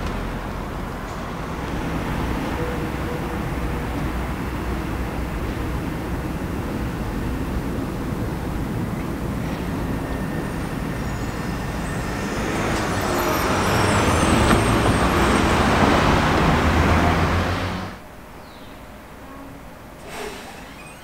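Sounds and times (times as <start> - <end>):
street traffic: 0.0 - 21.0
tram running on track: 0.0 - 21.0
faint high squealing: 9.4 - 16.1, 19.2 - 21.0.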